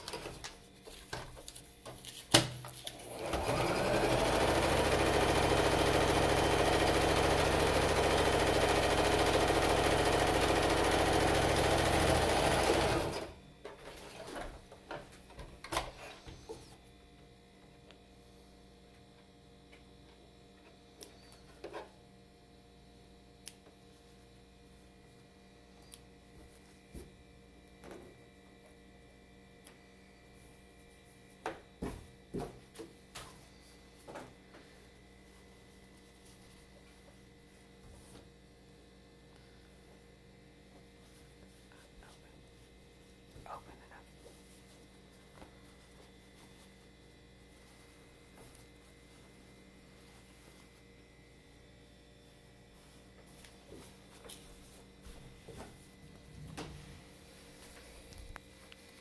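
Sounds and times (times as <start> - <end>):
sewing machine stitching: 3.0 - 13.4.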